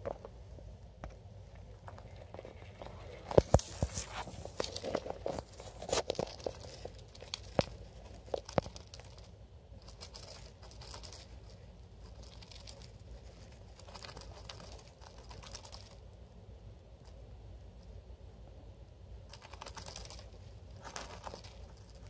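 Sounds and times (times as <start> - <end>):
rustling of wood shavings: 2.4 - 16.0.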